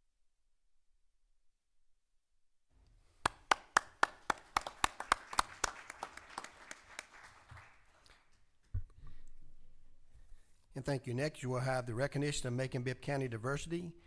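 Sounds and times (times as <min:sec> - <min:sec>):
small audience applause: 0:03.2 - 0:08.6
hands clapping close by: 0:03.2 - 0:08.8.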